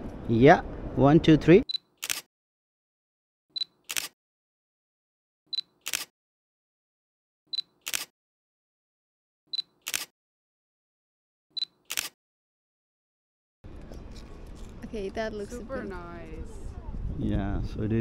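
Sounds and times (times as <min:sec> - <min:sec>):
camera shutter click: 0:02.0 - 0:02.3, 0:03.8 - 0:04.2, 0:05.8 - 0:06.1, 0:07.8 - 0:08.1, 0:09.8 - 0:10.1, 0:11.8 - 0:12.2
camera autofocus beep: 0:03.6 - 0:04.1, 0:05.5 - 0:06.1, 0:07.5 - 0:08.1, 0:09.5 - 0:10.1, 0:11.6 - 0:12.1.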